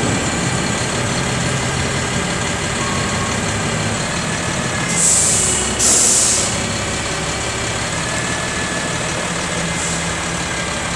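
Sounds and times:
diesel truck engine idling: 0:00.0 - 0:10.9
short loud air hisses: 0:05.0 - 0:06.6.

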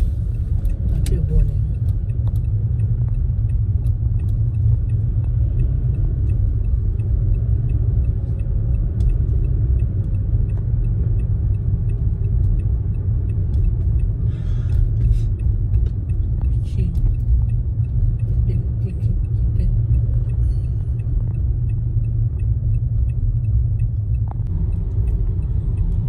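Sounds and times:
car tyre and engine rumble: 0:00.0 - 0:26.0
faint ticking: 0:00.2 - 0:26.0.

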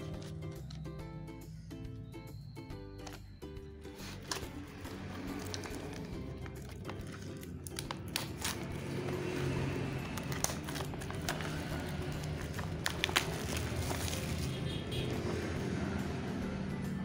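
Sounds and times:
plastic shrink-wrap crinkling: 0:05.1 - 0:15.1.

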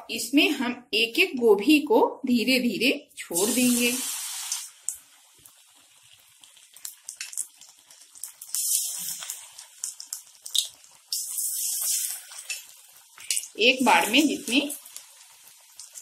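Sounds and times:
hot oil sizzling: 0:03.2 - 0:16.0.

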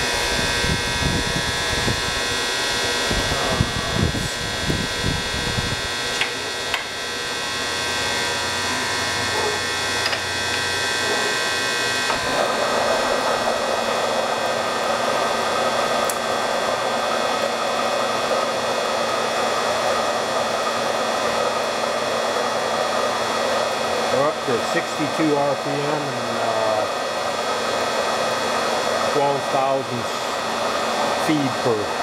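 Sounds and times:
milling machine whirring: 0:00.0 - 0:32.0
tool cutting steel: 0:06.1 - 0:07.0, 0:08.2 - 0:13.8.

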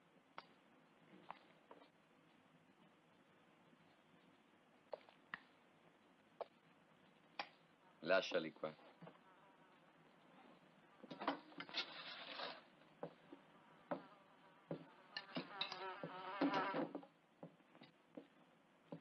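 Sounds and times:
housefly buzzing: 0:09.0 - 0:10.2, 0:13.3 - 0:17.0.

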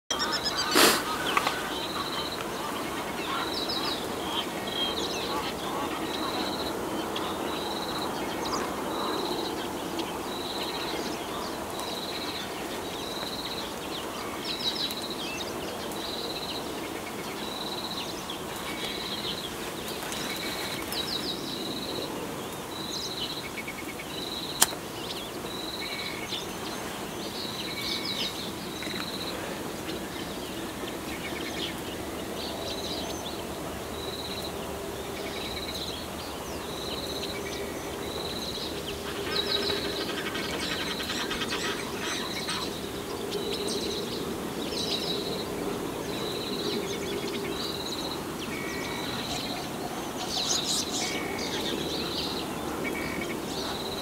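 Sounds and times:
birds chirping and trilling: 0:00.1 - 0:54.0
low background noise: 0:00.1 - 0:54.0
sharp click: 0:24.6 - 0:24.8.

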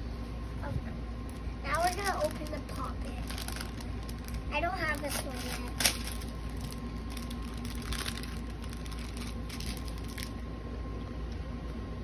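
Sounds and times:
steady low hum: 0:00.0 - 0:12.0
plastic bag crinkling: 0:01.7 - 0:10.4.

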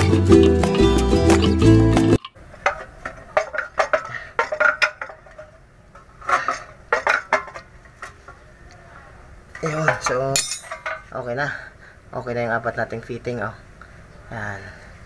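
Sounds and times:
metal parts clinking on steel: 0:02.6 - 0:05.6, 0:06.2 - 0:08.2, 0:09.6 - 0:11.1.

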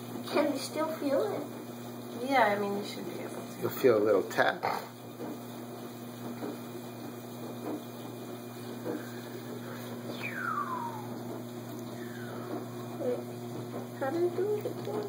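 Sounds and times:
low electrical hum: 0:00.0 - 0:15.0
whistle-like tone gliding down: 0:10.1 - 0:11.2, 0:12.0 - 0:12.5.

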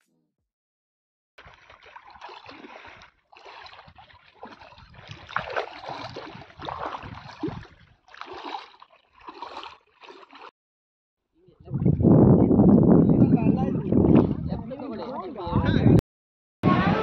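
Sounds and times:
person wading in shallow water: 0:01.4 - 0:10.6, 0:11.5 - 0:12.9.

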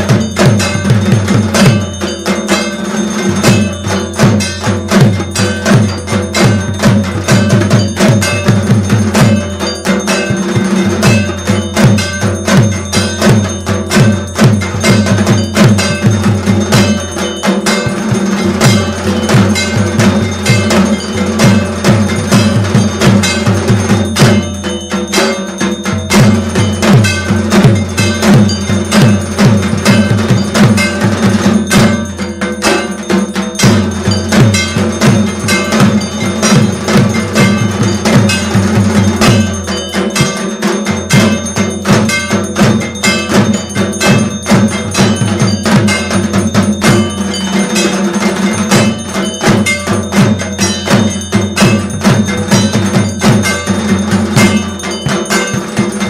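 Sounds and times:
fast percussion strokes: 0:00.0 - 0:56.0.

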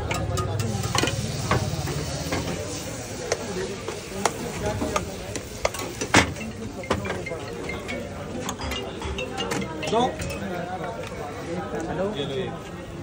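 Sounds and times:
batter sizzling in frying pan: 0:00.5 - 0:06.8.

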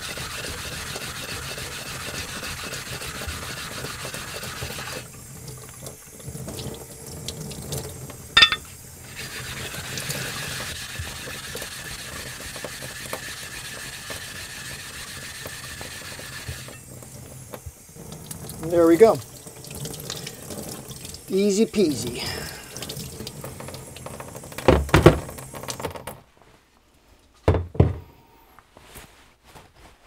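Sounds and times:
running tap water: 0:00.0 - 0:26.2
whetstone scraping on lapping plate: 0:08.4 - 0:08.7.

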